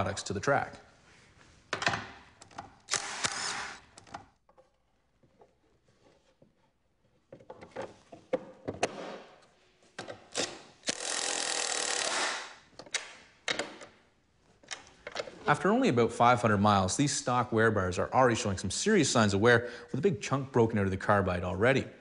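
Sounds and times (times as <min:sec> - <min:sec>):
clunks and rattles of tools: 0:07.2 - 0:09.2, 0:14.6 - 0:15.4
cordless drill running in bursts: 0:10.9 - 0:12.5.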